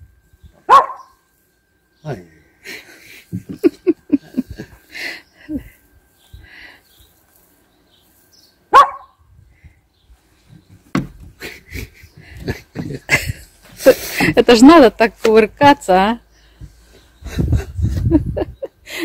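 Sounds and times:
dog barking: 0.7 - 1.2, 8.7 - 9.2.

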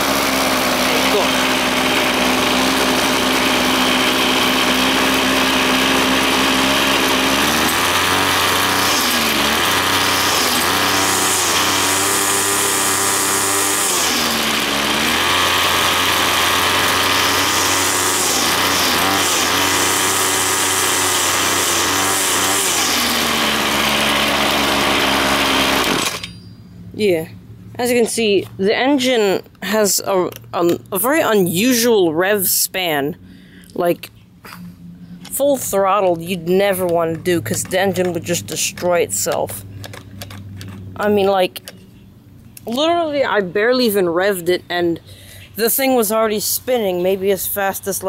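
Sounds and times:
string trimmer engine revving: 0.0 - 26.3.

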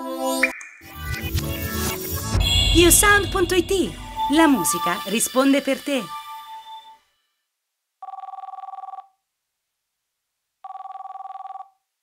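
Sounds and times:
electronic telephone ringing: 8.0 - 9.1, 10.7 - 11.7.

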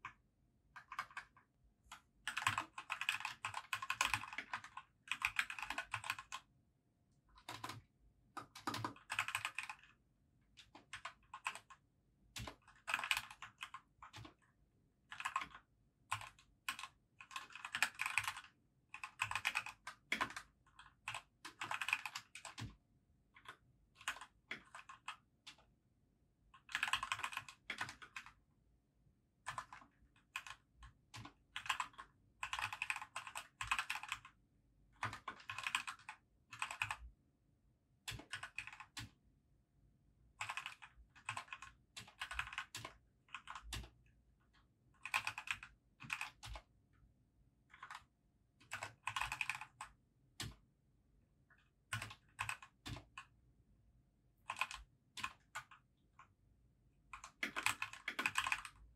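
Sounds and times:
mechanical keyboard typing: 0.0 - 6.5, 7.4 - 10.0, 10.6 - 14.4, 15.1 - 22.8, 23.4 - 25.6, 26.6 - 28.4, 29.4 - 34.4, 35.0 - 37.1, 38.1 - 39.2, 40.4 - 44.0, 45.0 - 46.7, 47.7 - 50.6, 51.9 - 53.4, 54.4 - 56.3, 57.1 - 58.9.

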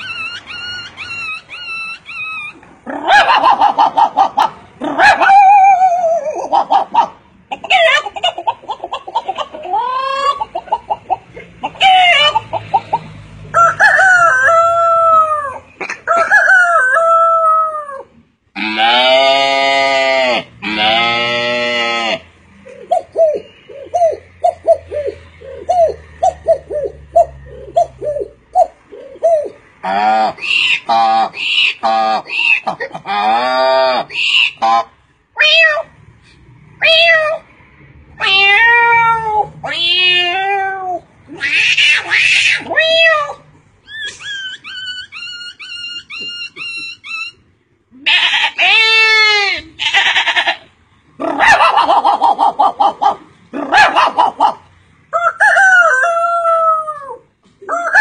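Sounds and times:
man imitating bird calls: 22.7 - 34.8.

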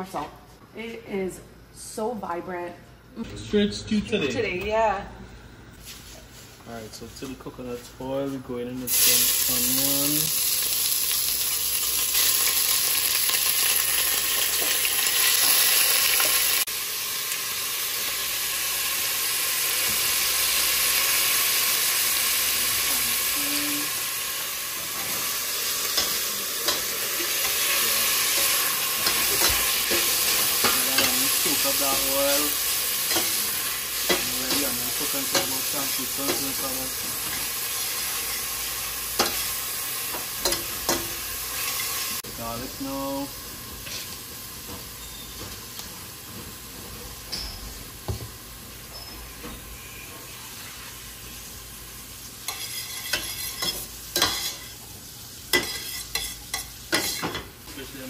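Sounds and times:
onion sizzling in oil: 8.8 - 47.2, 47.8 - 58.0
spoon scraping a metal pot: 52.5 - 54.7.

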